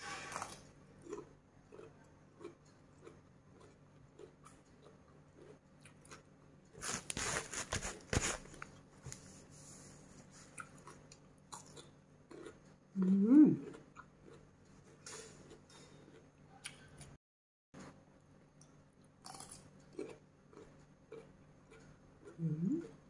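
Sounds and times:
chewing: 0.3 - 6.3, 10.4 - 17.2, 18.6 - 23.0.

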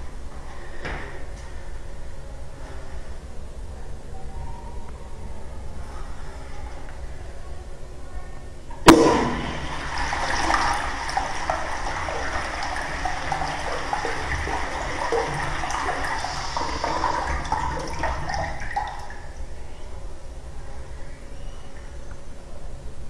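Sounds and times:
water rushing through urinal: 8.9 - 19.5.

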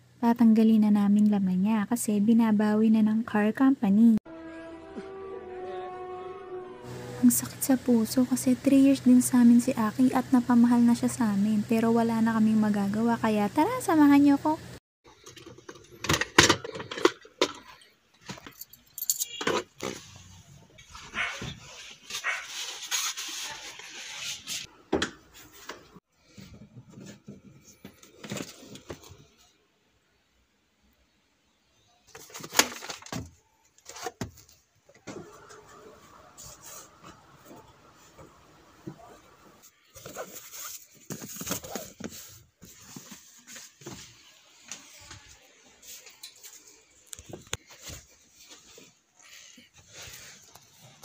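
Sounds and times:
clicks and knocks of objects moved: 15.1 - 20.1
rustling and handling belongings: 15.1 - 29.6, 32.0 - 51.0
belongings rustling and scraping: 39.6 - 51.0.

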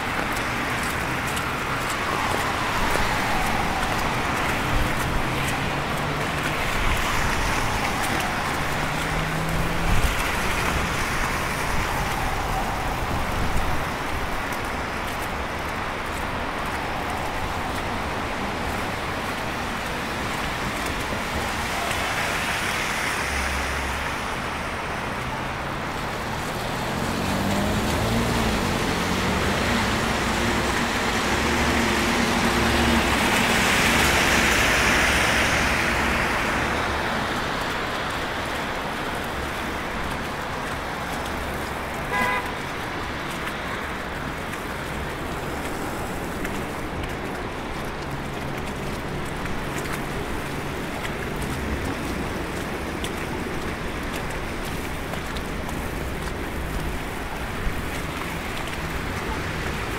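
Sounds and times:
cars driving on slushy street: 0.0 - 59.9
short car horn beep: 42.1 - 42.6.

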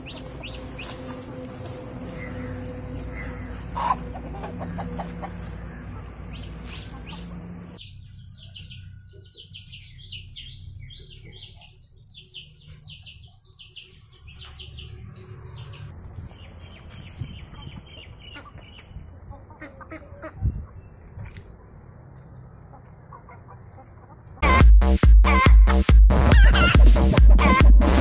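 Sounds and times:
hens clucking: 0.0 - 7.8, 16.4 - 21.8, 22.5 - 24.6, 26.1 - 27.2
chicks peeping: 0.0 - 24.9, 25.8 - 27.6.

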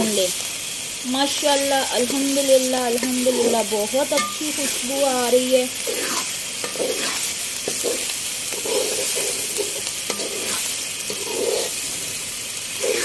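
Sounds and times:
chicken sizzling in hot oil: 0.0 - 13.0
spatula scraping and stirring: 3.0 - 5.1, 5.7 - 13.0.

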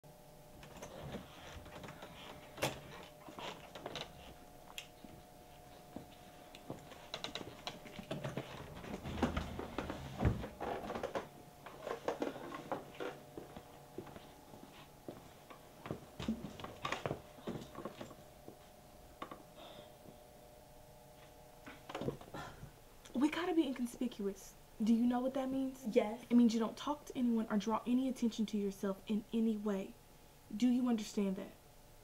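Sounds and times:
faint steady hum: 0.1 - 32.0
door opening: 0.6 - 4.3.

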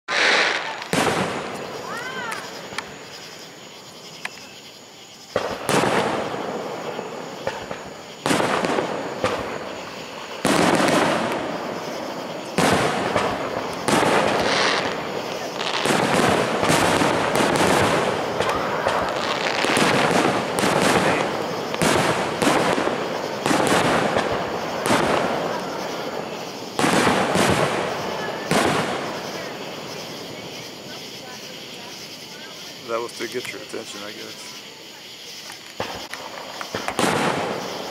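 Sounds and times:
falling firework whistle: 0.1 - 2.9, 5.3 - 26.2
fireworks booming: 0.1 - 4.0, 5.2 - 32.0, 35.8 - 37.9.

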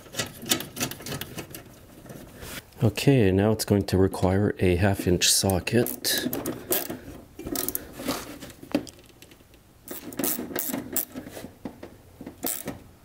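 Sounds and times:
socket ratchet clicking: 12.4 - 12.8.

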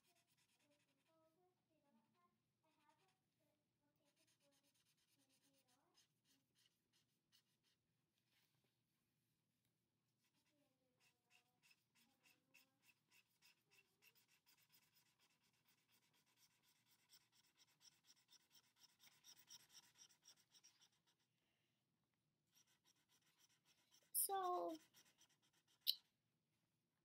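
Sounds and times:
marker scratching on paper: 0.0 - 1.1, 4.0 - 8.5, 10.2 - 21.3, 22.5 - 26.0.

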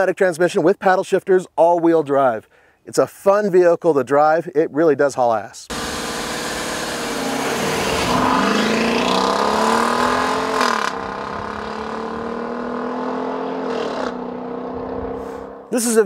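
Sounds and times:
car engine accelerating hard: 5.7 - 15.7.

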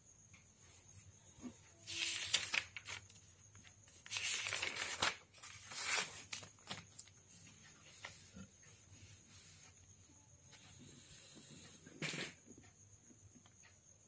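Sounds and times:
notebook pages turning: 1.9 - 7.1.

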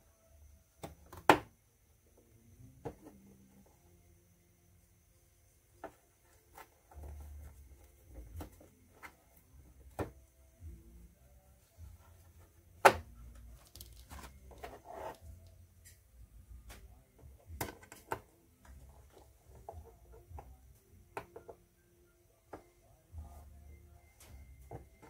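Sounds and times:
rustling handling noise: 13.3 - 15.6.

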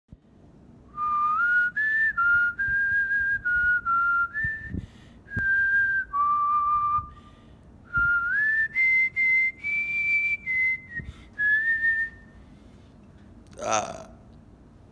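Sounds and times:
man whistling a tune: 0.9 - 12.4.

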